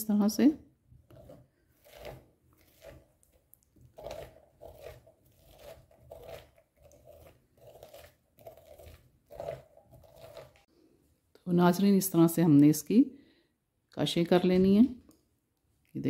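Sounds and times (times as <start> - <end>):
metal spoon scraping pumpkin: 0.1 - 10.7.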